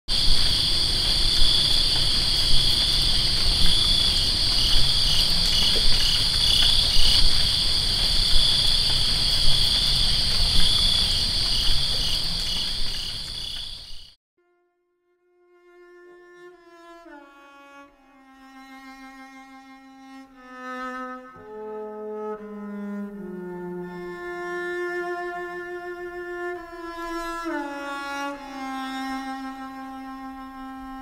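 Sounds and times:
insects chirping: 0.1s - 14.2s.

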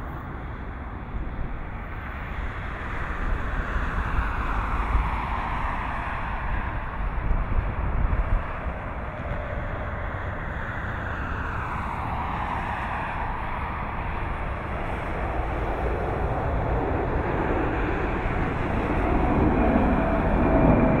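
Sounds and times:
jet airliner roar: 0.0s - 21.0s
falling jet whine: 14.3s - 21.0s.

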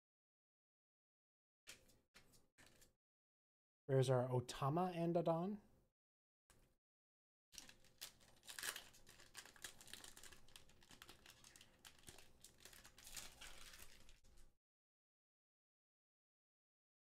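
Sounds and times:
foil wrapper crinkling and tearing: 7.6s - 14.5s.

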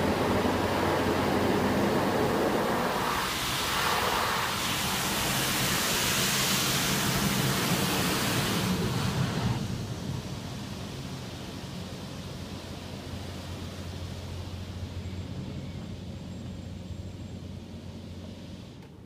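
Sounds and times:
water jets spraying on windshield: 0.0s - 14.8s
low steady hum: 0.0s - 19.0s.

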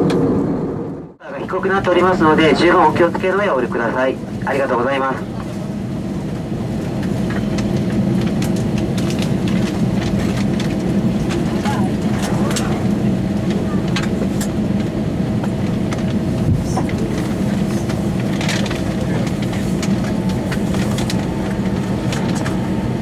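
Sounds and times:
jet engines humming at idle: 0.0s - 23.0s
light clicks in cabin: 6.9s - 16.2s
faint voices: 11.4s - 14.4s.

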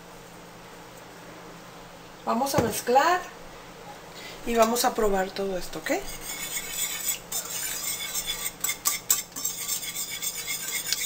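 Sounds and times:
whisk beating in a bowl: 5.8s - 11.0s.

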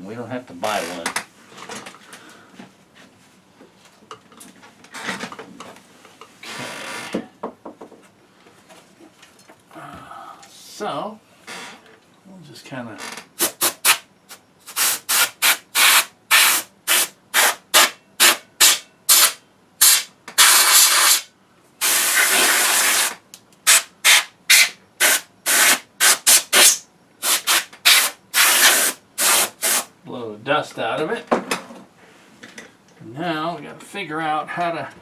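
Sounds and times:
compressed air duster hissing: 13.4s - 29.9s.

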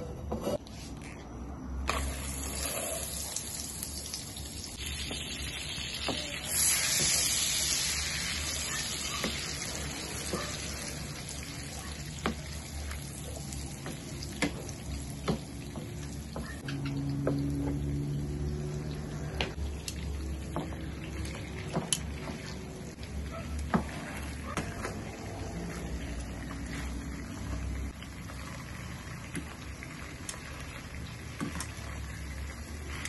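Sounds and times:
butter sizzling in frying pan: 1.9s - 16.3s, 25.5s - 33.0s.

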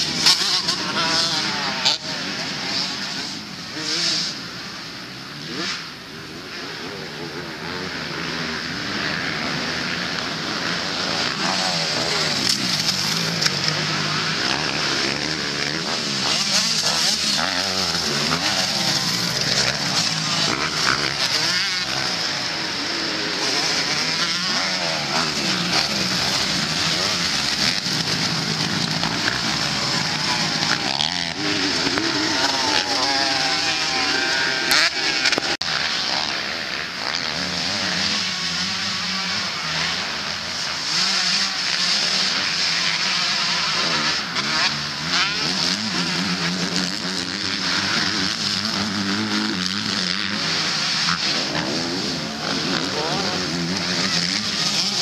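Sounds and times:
motocross bike engines revving: 0.0s - 55.0s.

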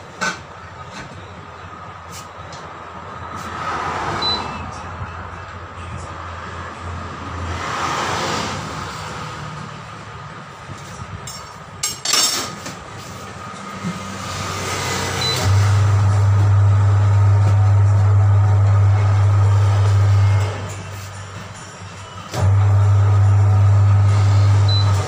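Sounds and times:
machine motor humming: 14.4s - 20.8s, 22.3s - 25.0s.

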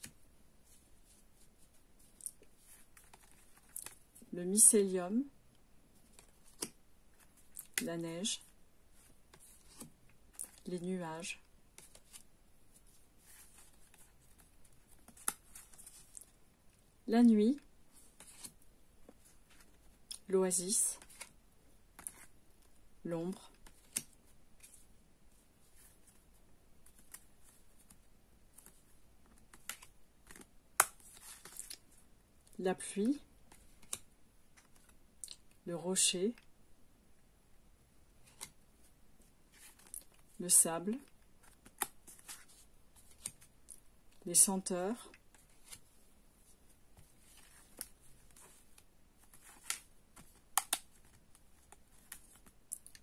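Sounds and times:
cards sliding and clicking: 9.3s - 10.6s, 18.1s - 19.8s, 21.0s - 21.3s, 22.0s - 22.3s, 23.6s - 24.8s, 26.8s - 31.8s, 33.5s - 35.0s, 41.4s - 43.5s, 45.3s - 45.9s, 47.0s - 53.0s
cards clicking and tapping: 23.6s - 24.2s, 28.6s - 31.8s, 49.2s - 53.0s.

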